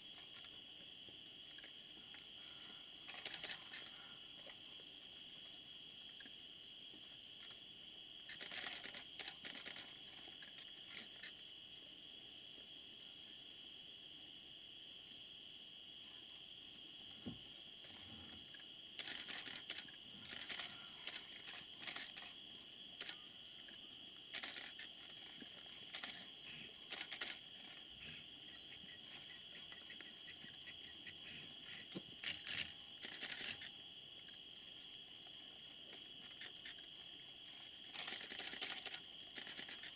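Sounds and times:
night insects chorus: 0:00.0 - 0:39.9
short crackles and clicks: 0:37.9 - 0:39.9.

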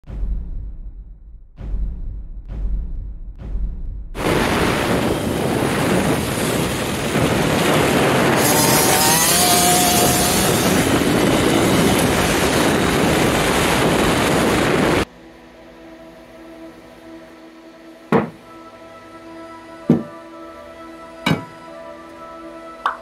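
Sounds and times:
wind buffeting microphone: 0:04.2 - 0:15.1
small two-stroke dirt bike engine: 0:08.3 - 0:12.6.

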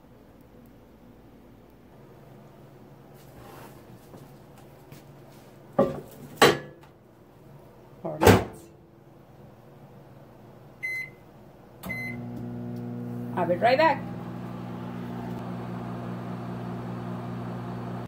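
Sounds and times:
short keypad beep: 0:11.9 - 0:12.2.

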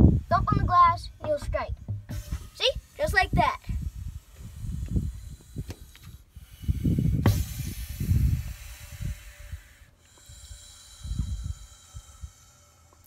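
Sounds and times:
low rumbles: 0:00.0 - 0:13.0
snake hissing: 0:02.1 - 0:13.0.

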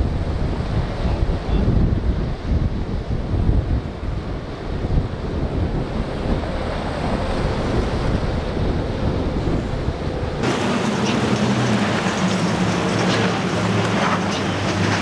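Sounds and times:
outboard engine drone: 0:00.0 - 0:15.0
wind buffeting microphone: 0:00.0 - 0:15.0
surf breaking: 0:10.4 - 0:15.0.

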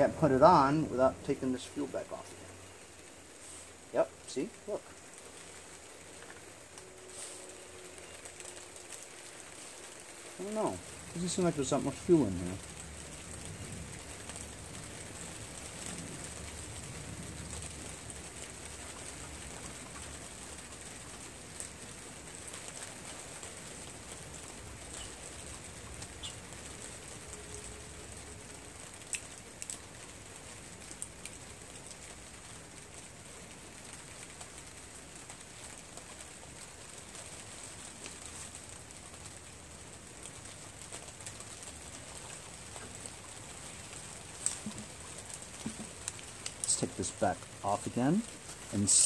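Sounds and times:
light rain falling: 0:00.0 - 0:49.0
bird calling faintly: 0:24.8 - 0:28.0.

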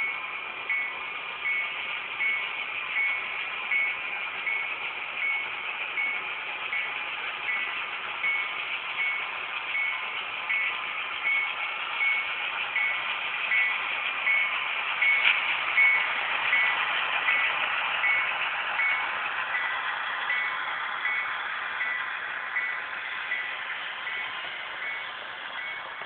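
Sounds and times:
model train bell dinging: 0:00.0 - 0:26.0
model train running: 0:00.0 - 0:26.0.

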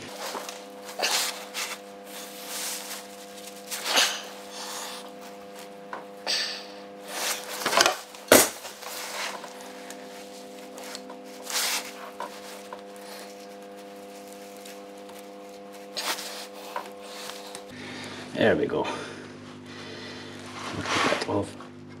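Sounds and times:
rubber belt scraping and rubbing: 0:08.8 - 0:17.7.

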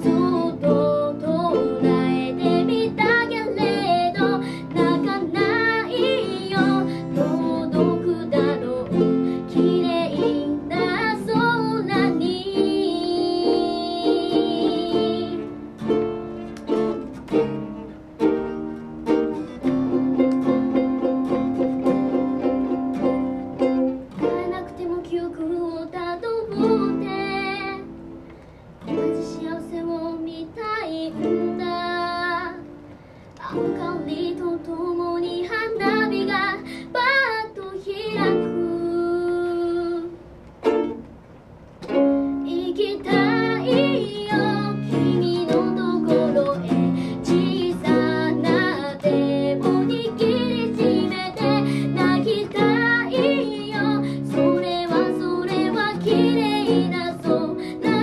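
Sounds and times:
woman singing: 0:00.0 - 0:15.6, 0:24.2 - 0:28.0, 0:28.9 - 0:32.8, 0:33.4 - 0:40.2, 0:42.4 - 0:58.0
acoustic guitar strumming: 0:00.0 - 0:25.6, 0:30.9 - 0:58.0.

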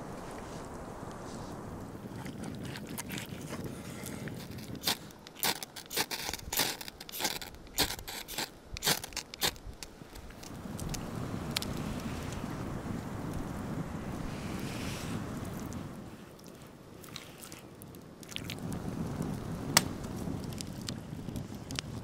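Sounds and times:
low wind rumble: 0:00.0 - 0:17.0, 0:17.7 - 0:22.0.

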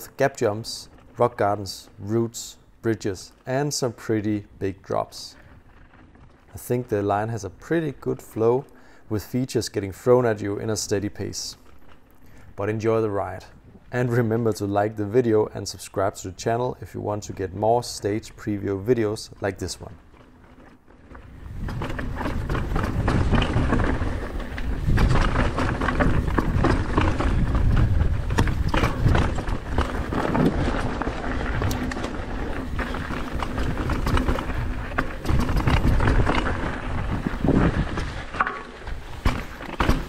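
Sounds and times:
bike chain and frame rattling: 0:00.0 - 0:09.0, 0:09.6 - 0:40.0
tyres rushing over gravel: 0:17.1 - 0:40.0
wind on microphone: 0:21.3 - 0:32.0, 0:32.7 - 0:38.3.

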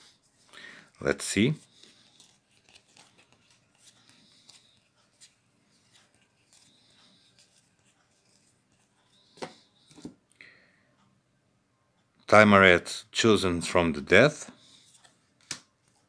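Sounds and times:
cards clicking and sliding: 0:01.7 - 0:10.1, 0:14.8 - 0:16.0.

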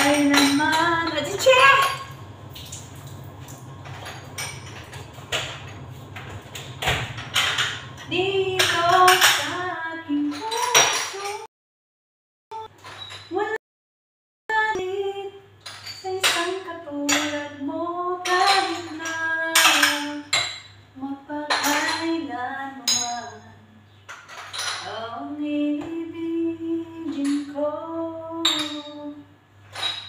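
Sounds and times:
woman singing slow tune: 0:00.0 - 0:01.8, 0:08.1 - 0:11.4, 0:14.5 - 0:23.8, 0:24.8 - 0:29.4
metal pots and utensils clattering: 0:00.0 - 0:02.2, 0:03.8 - 0:11.5, 0:18.2 - 0:20.8, 0:21.5 - 0:22.2, 0:24.1 - 0:25.0, 0:29.7 - 0:30.0.

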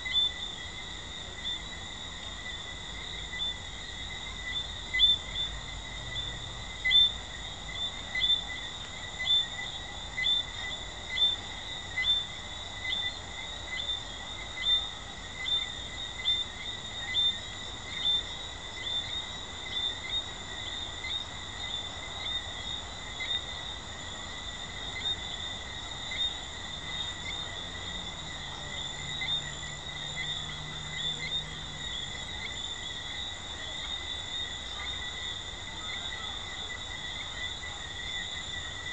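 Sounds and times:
frog chirping call: 0:00.0 - 0:00.8, 0:03.1 - 0:22.5
high-pitched frog chorus: 0:00.0 - 0:38.9.

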